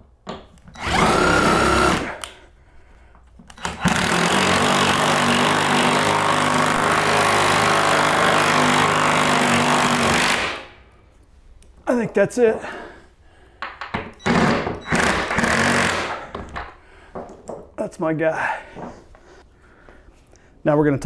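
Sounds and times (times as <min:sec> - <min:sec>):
cordless drill driving bolt: 0:00.6 - 0:02.4, 0:03.5 - 0:10.4, 0:14.2 - 0:16.2.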